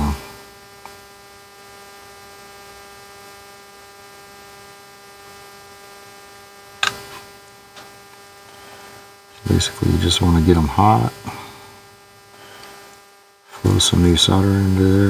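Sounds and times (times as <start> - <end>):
electrical hum: 0.0 - 15.0
sharp brief click: 6.8 - 7.0.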